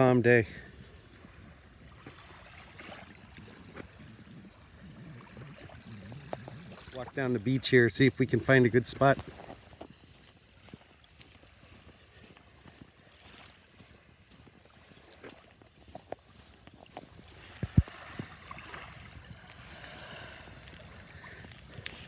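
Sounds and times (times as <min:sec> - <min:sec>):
small waves lapping: 0:00.0 - 0:22.0
footsteps on sand: 0:08.5 - 0:22.0.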